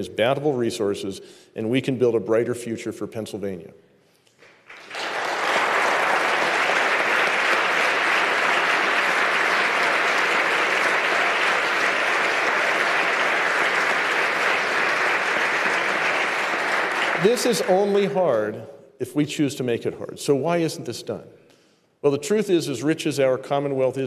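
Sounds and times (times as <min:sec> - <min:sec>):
audience applauding: 0:04.4 - 0:18.2.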